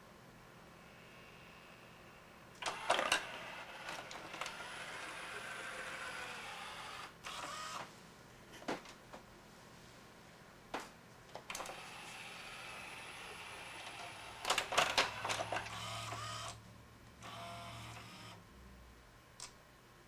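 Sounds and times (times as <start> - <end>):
mechanism clicks and clunks: 2.6 - 4.7, 11.3 - 11.8, 13.8 - 16.6
small motor whirring: 2.6 - 7.8, 11.7 - 14.5, 15.1 - 16.6, 17.2 - 18.4.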